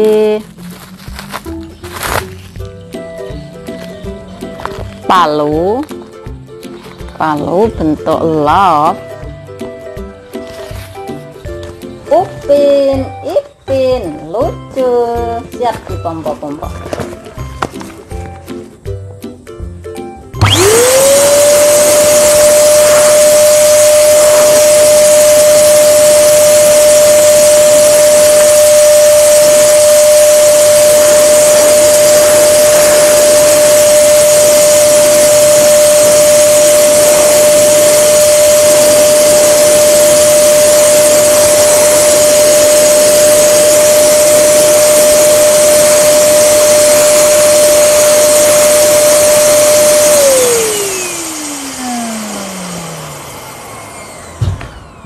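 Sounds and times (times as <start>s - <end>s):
electric balloon pump running: 20.4s - 55.0s
motor spinning down: 20.4s - 55.0s.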